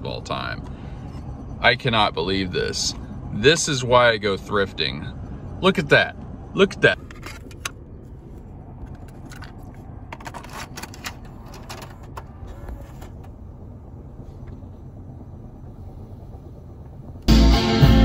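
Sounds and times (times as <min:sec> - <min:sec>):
low hum inside car: 0:00.0 - 0:18.0.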